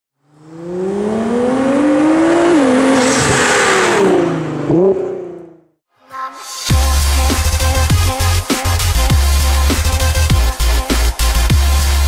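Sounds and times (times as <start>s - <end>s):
car engine revving hard: 0.2s - 5.7s.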